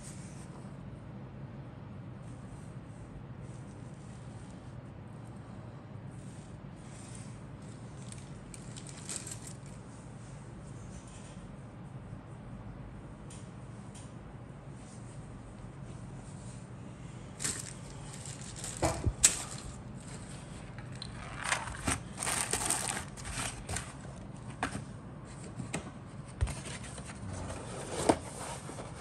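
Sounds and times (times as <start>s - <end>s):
plastic bag crinkling: 8.0s - 9.8s, 17.4s - 24.2s
box scraping: 21.1s - 24.7s, 26.5s - 29.0s.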